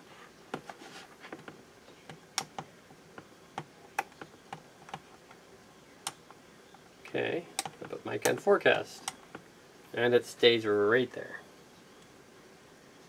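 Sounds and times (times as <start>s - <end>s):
clicks and taps of clip leads: 7.6s - 8.4s.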